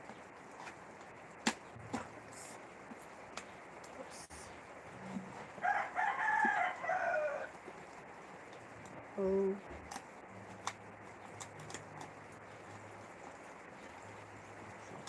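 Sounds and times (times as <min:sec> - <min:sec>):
rooster crowing: 0:05.6 - 0:07.6.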